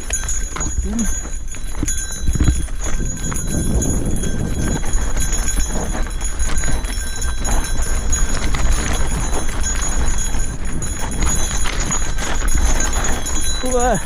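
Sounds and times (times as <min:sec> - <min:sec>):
mountain bike rattling over stones: 0:00.0 - 0:14.0.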